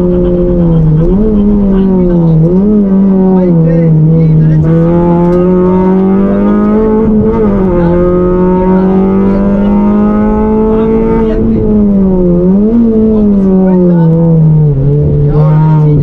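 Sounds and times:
rally car engine revving: 0:00.0 - 0:16.0.

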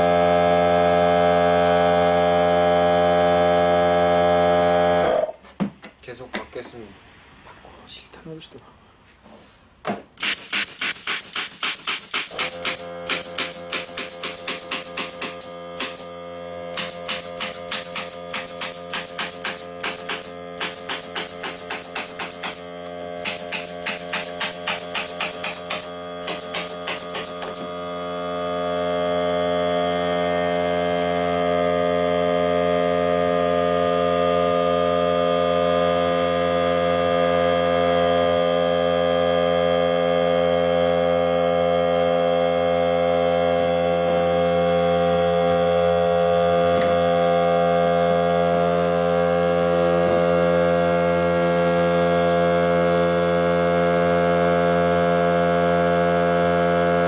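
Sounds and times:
air compressor motor humming: 0:00.0 - 0:05.4, 0:10.2 - 0:57.0
nail gun firing: 0:10.2 - 0:16.1, 0:16.7 - 0:27.7.

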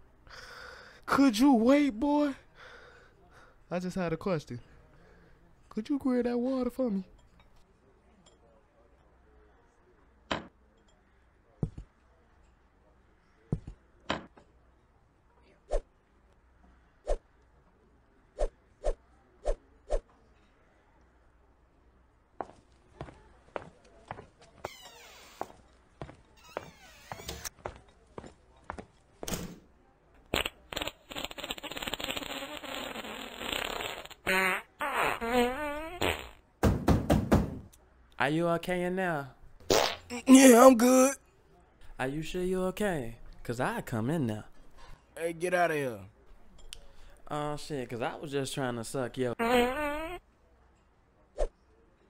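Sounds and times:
cartoon farts: 0:30.3 - 0:36.4, 0:39.7 - 0:40.4, 0:49.4 - 0:50.2.

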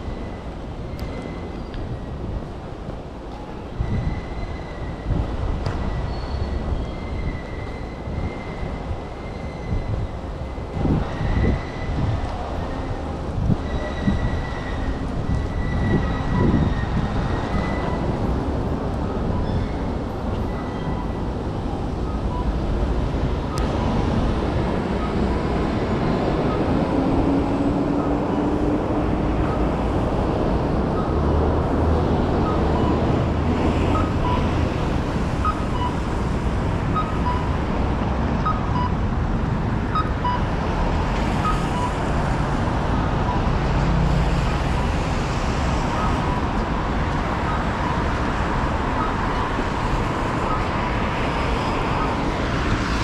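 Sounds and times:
traffic noise: 0:00.0 - 0:53.0.

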